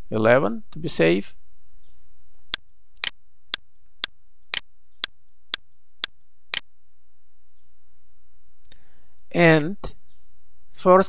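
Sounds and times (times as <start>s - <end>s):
sharp computer mouse clicks: 3.6s - 6.2s.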